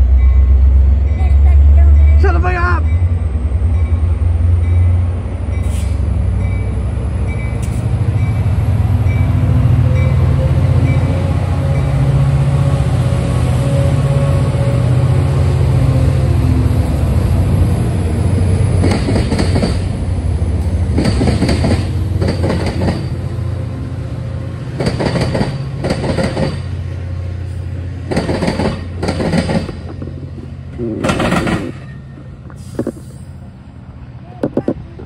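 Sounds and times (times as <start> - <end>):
diesel locomotive engine drone: 0.0 - 35.0
train wheels clacking over rail joints: 18.7 - 20.0, 20.7 - 23.2, 24.7 - 26.8, 28.0 - 33.1.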